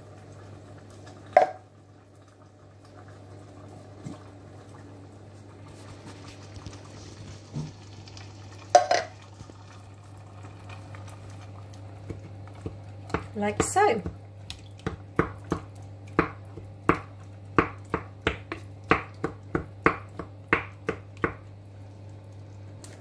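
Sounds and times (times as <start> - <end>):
sharp knocks on pan: 8.7 - 9.1.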